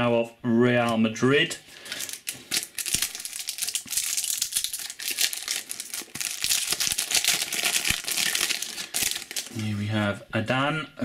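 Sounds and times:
foil wrapper crinkling: 1.7s - 9.7s.

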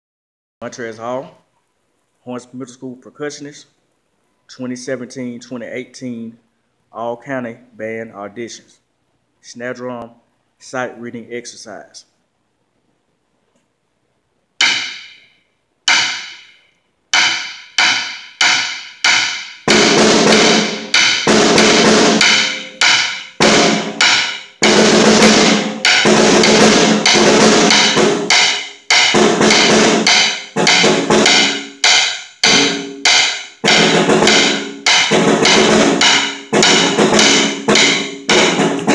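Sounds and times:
snare drum strokes and rolls: 17.3s - 38.9s.

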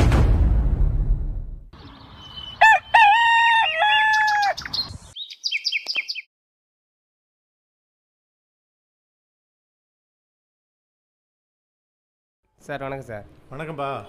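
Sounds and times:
low boom: 0.0s - 1.7s
small birds chirping: 1.8s - 6.3s
rooster crowing: 2.4s - 4.6s.

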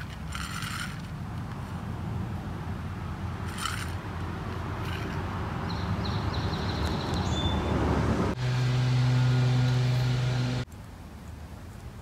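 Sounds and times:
outdoor background noise: 0.0s - 12.0s
loud low motor hum: 7.7s - 10.7s.

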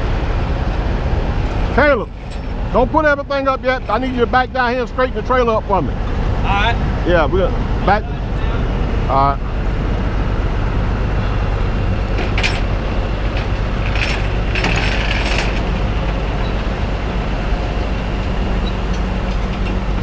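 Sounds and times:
truck engine idling: 0.0s - 20.0s
metallic rattling and clinking: 1.8s - 4.4s, 12.0s - 16.5s.

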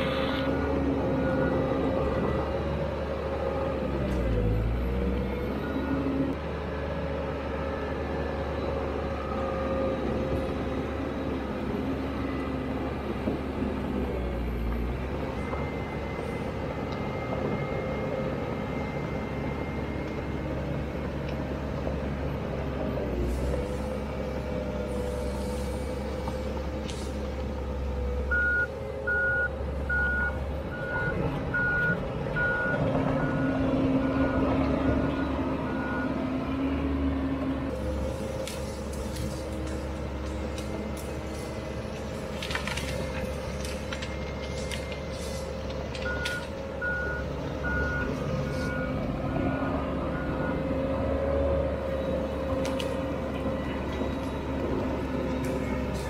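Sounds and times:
diesel engine running: 0.0s - 56.0s
backup alarm beeping: 28.3s - 34.4s.

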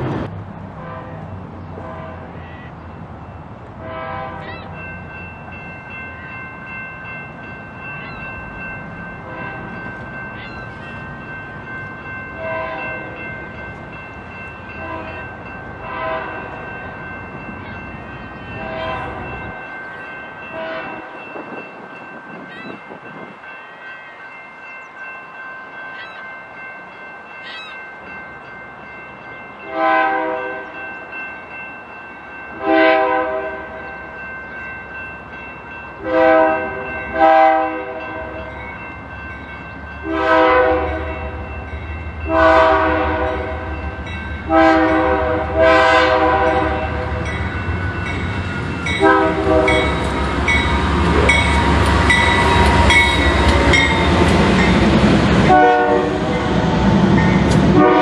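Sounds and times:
locomotive air horn blasts: 0.8s - 1.2s, 1.8s - 2.4s, 3.8s - 4.4s, 12.4s - 13.0s, 14.8s - 15.2s, 15.8s - 16.5s, 18.6s - 19.3s, 20.5s - 21.1s, 29.6s - 30.7s, 32.6s - 33.8s, 36.0s - 38.4s, 40.0s - 41.4s, 42.3s - 43.8s, 44.5s - 47.2s, 49.0s - 50.0s, 55.5s - 56.3s, 57.7s - 58.0s
high ringing tone: 4.4s - 15.4s, 16.5s - 29.5s.

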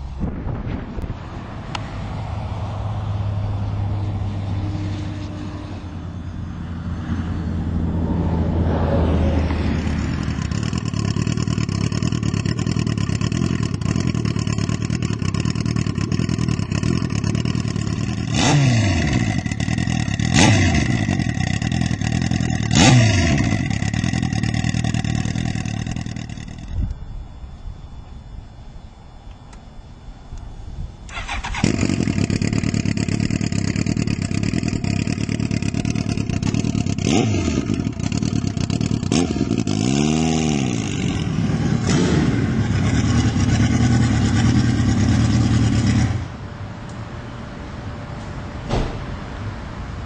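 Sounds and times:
motorcycle engine revving: 0.0s - 27.0s, 31.1s - 46.4s
motorcycle engine idling: 9.4s - 28.3s, 30.9s - 46.5s.

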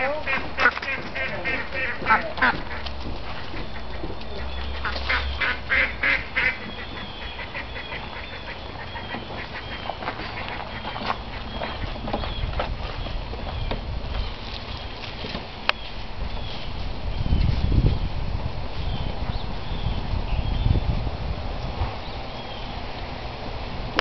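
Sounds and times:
ducks quacking: 0.0s - 15.0s.

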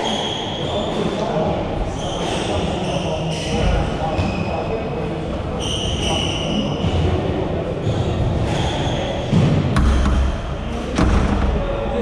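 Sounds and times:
shoe squeaks on wooden court: 0.0s - 1.3s, 1.9s - 4.8s, 5.5s - 7.1s, 7.8s - 11.0s
squash ball knocks: 9.3s - 11.9s.

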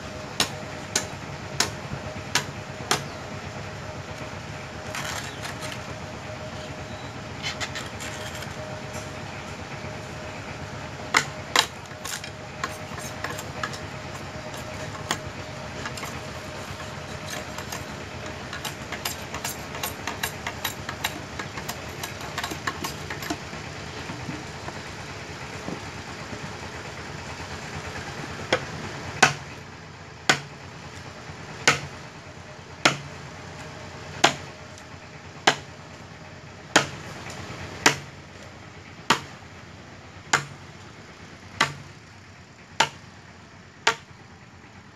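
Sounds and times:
steady low hum: 0.0s - 44.9s
machete chopping bamboo: 0.4s - 3.1s, 11.1s - 13.8s, 18.5s - 23.4s, 28.5s - 29.6s, 30.3s - 30.5s, 31.6s - 31.9s, 32.8s - 33.1s, 34.2s - 34.5s, 35.4s - 35.7s, 36.7s - 37.1s, 37.8s - 38.1s, 39.1s - 39.4s, 40.3s - 40.6s, 41.6s - 41.9s, 42.8s - 43.0s, 43.8s - 44.1s.

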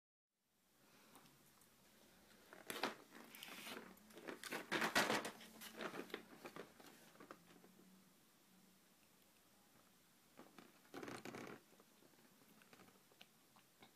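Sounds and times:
crackling handling noises: 1.2s - 7.8s.

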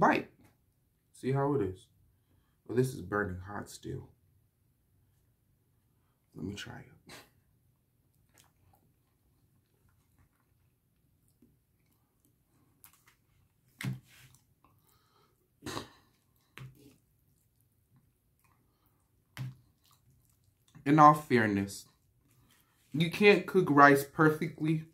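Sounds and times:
person chewing food: 8.1s - 20.8s.

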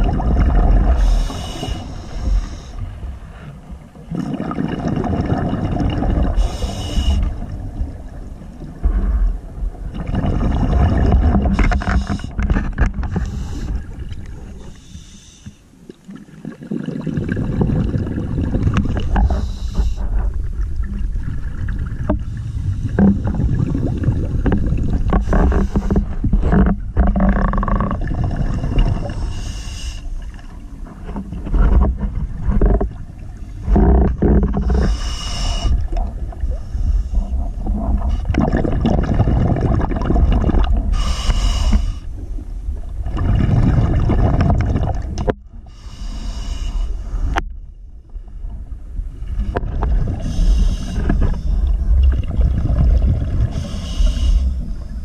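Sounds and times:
low bubbling of exhaled air: 0.0s - 14.8s, 15.9s - 46.3s, 47.2s - 55.0s
regulator hiss on breath in: 1.0s - 2.8s, 6.4s - 7.3s, 13.2s - 13.8s, 14.7s - 15.7s, 19.3s - 20.0s, 29.2s - 30.1s, 34.8s - 35.8s, 40.9s - 42.1s, 45.7s - 47.4s, 50.2s - 51.6s, 53.5s - 55.0s.

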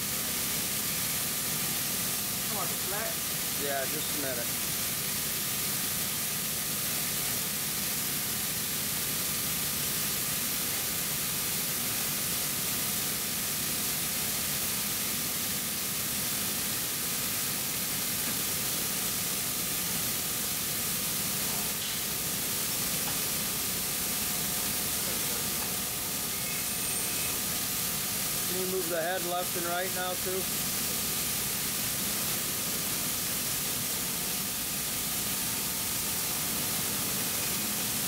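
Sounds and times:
laser cutting machine hissing: 0.0s - 38.0s
faint high whine: 26.2s - 27.5s.

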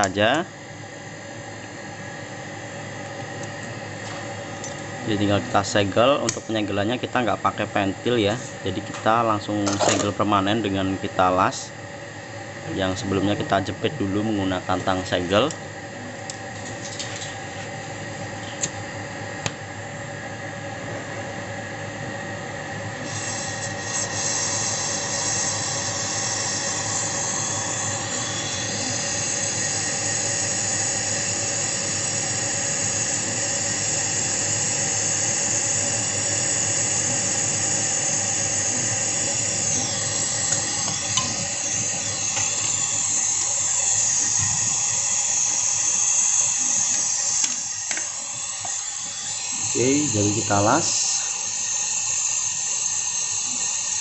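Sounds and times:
refrigerator compressor hum: 0.0s - 54.0s
brazing torch hissing: 22.6s - 54.0s.

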